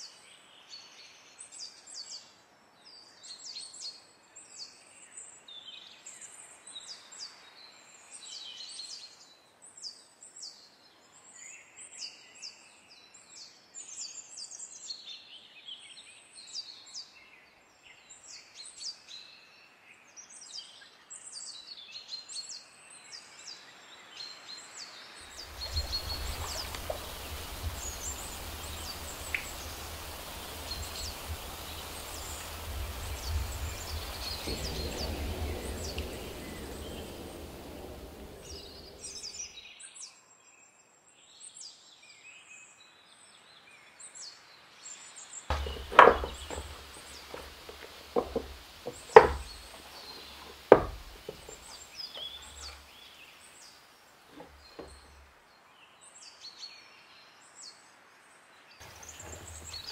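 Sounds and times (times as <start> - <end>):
steady outdoor hiss: 23.5 - 39.5, 44.3 - 59.9
small birds chirping: 25.3 - 39.5, 45.5 - 53.7, 58.8 - 59.9.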